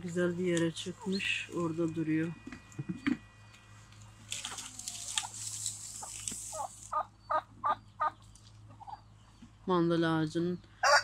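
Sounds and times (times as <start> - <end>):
rustling hiss: 3.8 - 7.0.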